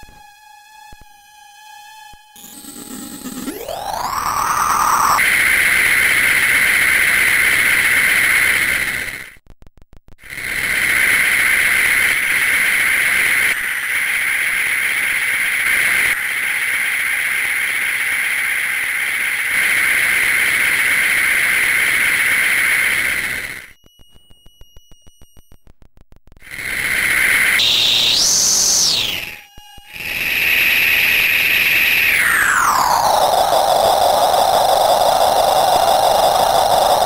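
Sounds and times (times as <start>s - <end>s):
harsh electronic engine buzz: 0.0s - 9.4s, 10.2s - 37.0s
clicks: 23.7s - 26.5s.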